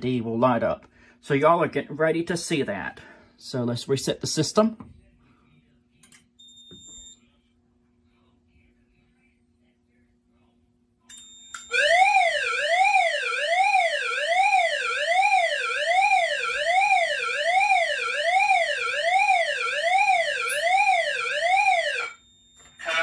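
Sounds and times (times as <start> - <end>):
fire alarm sweeping tone: 11.1 - 22.9.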